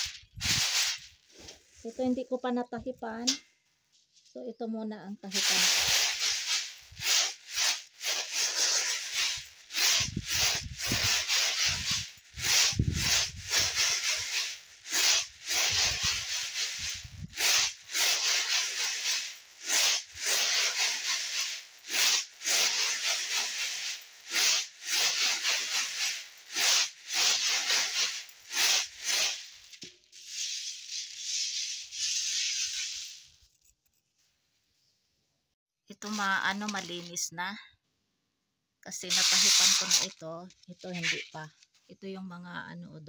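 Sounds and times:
popcorn kernels swishing in tray: 0:00.0 - 0:02.4, 0:05.2 - 0:33.5, 0:35.9 - 0:37.2, 0:38.9 - 0:41.6.

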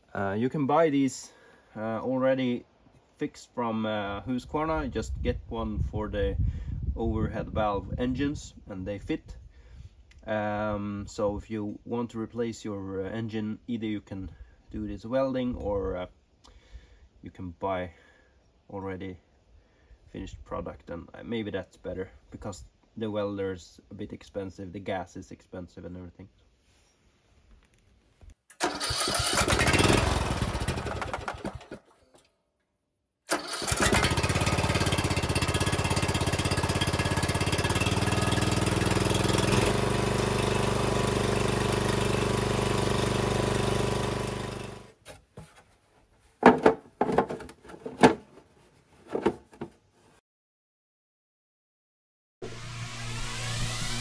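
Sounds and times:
mower engine running: 0:28.6 - 0:31.8, 0:33.3 - 0:44.9.

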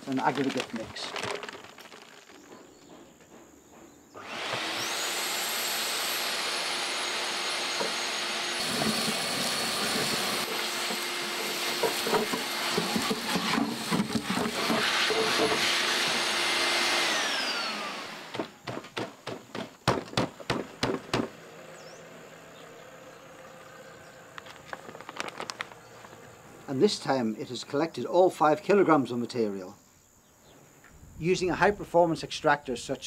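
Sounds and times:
gritty aggregate rattling through hose: 0:00.0 - 0:02.9, 0:08.6 - 0:15.8, 0:24.4 - 0:26.1
dust extractor motor whine: 0:04.2 - 0:18.6, 0:20.7 - 0:26.7.

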